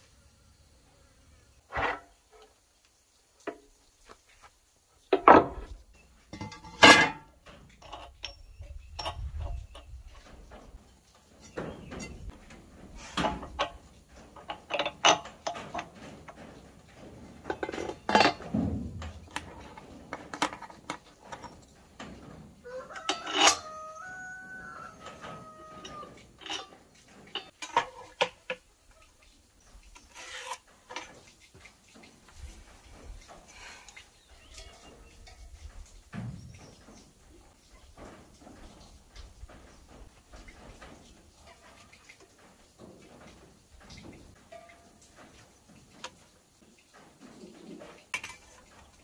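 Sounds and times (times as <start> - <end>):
metal clinks and knocks: 6.3 - 28.5, 34.5 - 46.2.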